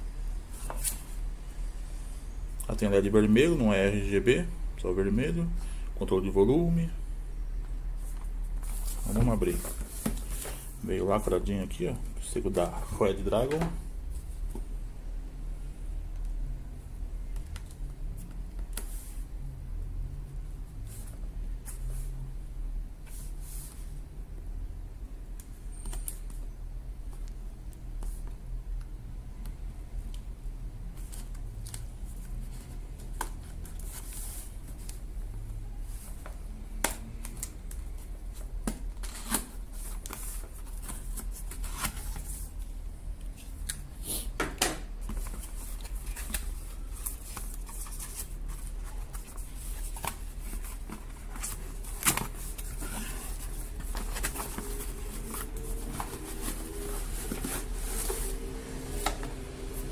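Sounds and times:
cardboard flaps and packaging rustling: 0:08.0 - 0:14.5, 0:45.0 - 0:59.9.

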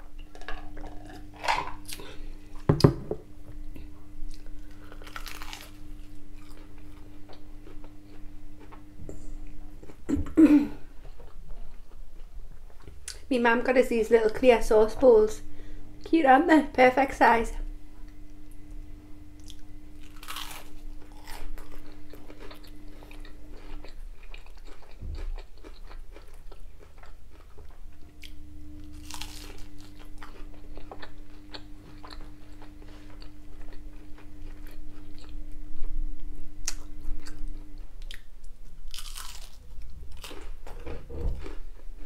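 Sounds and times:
faint steady hum: 0:00.0 - 0:42.0
crisp batter crunching: 0:04.3 - 0:07.9, 0:19.5 - 0:35.4, 0:38.9 - 0:41.6.

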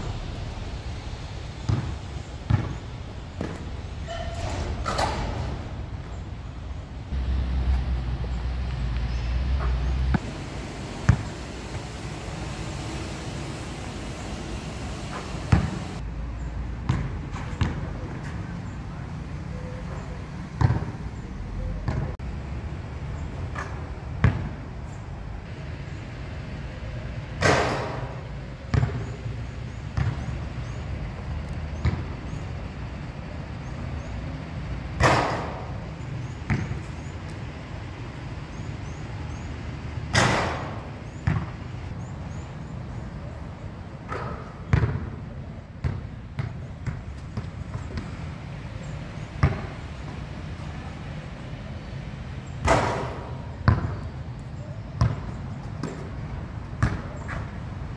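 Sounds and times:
low rumble: 0:00.0 - 0:04.1
ball crashing on hoop: 0:01.6 - 0:02.8, 0:15.0 - 0:16.0
basketball bouncing on concrete: 0:01.6 - 0:03.7, 0:11.0 - 0:11.5, 0:15.0 - 0:16.0, 0:16.9 - 0:17.9, 0:20.6 - 0:21.0, 0:28.7 - 0:29.2, 0:30.0 - 0:30.3, 0:36.5 - 0:36.9, 0:41.2 - 0:41.5, 0:44.1 - 0:45.1, 0:45.8 - 0:48.1, 0:49.4 - 0:49.7, 0:53.6 - 0:54.1, 0:55.0 - 0:56.1, 0:56.8 - 0:57.1.

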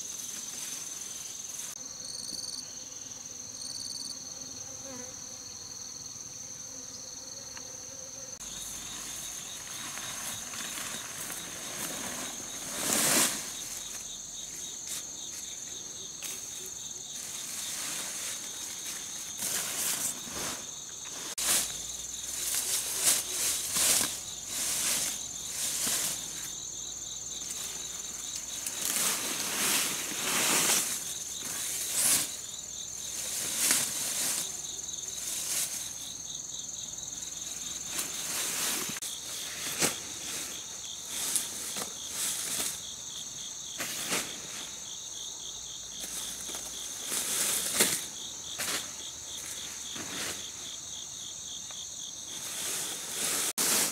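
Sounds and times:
rustling of leaves and canvas: 0:00.0 - 0:01.8, 0:08.4 - 0:45.3, 0:45.9 - 0:53.9
insect chorus with crickets: 0:00.0 - 0:53.9
bee buzzing: 0:01.8 - 0:11.5.

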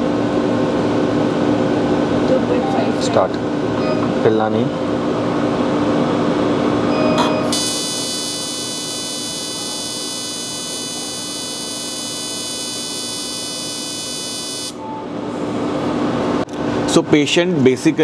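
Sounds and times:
low machine hum: 0:00.0 - 0:17.1
laser high-pitched buzz: 0:07.5 - 0:14.8.

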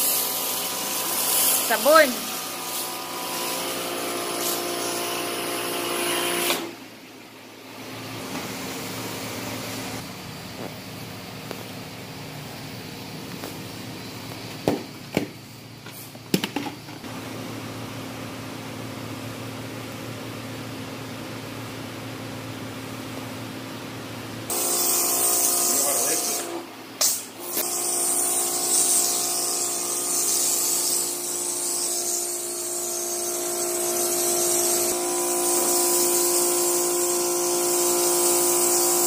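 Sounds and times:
pressure washer spraying: 0:00.0 - 0:05.1.

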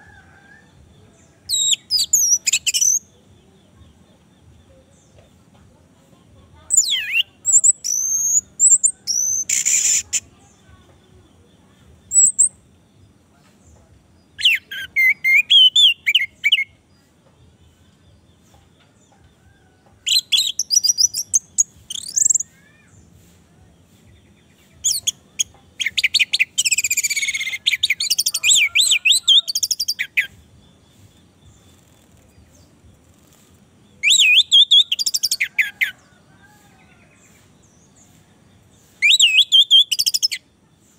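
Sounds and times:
thrush singing whistled phrases: 0:06.7 - 0:10.2, 0:34.0 - 0:35.5, 0:39.0 - 0:40.4.

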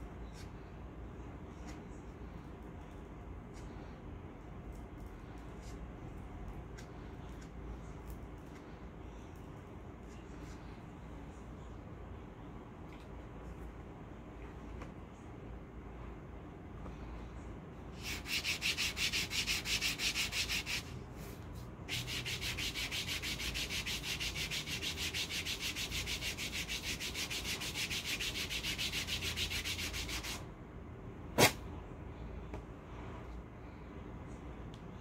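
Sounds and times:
hand rubbing paper strip: 0:18.0 - 0:21.0, 0:21.9 - 0:30.4
sharp snap: 0:31.4 - 0:31.6.

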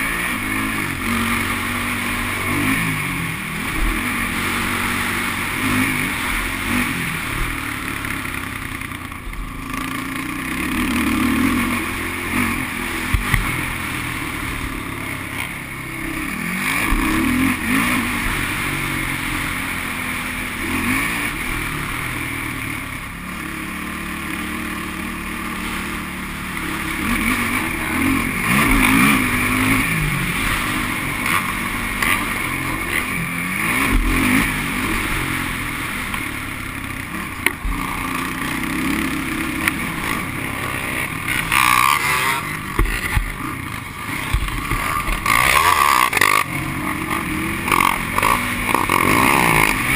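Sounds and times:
quad engine revving: 0:00.0 - 0:49.9.

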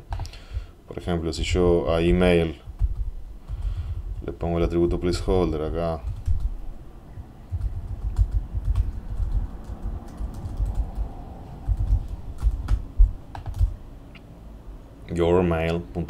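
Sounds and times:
computer keyboard typing: 0:00.1 - 0:00.4, 0:02.6 - 0:03.8, 0:06.0 - 0:06.6, 0:07.4 - 0:13.8.

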